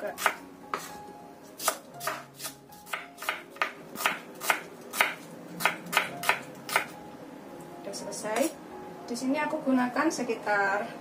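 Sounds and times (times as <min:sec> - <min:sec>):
knife slicing shallots: 0:00.0 - 0:01.0, 0:01.6 - 0:06.9.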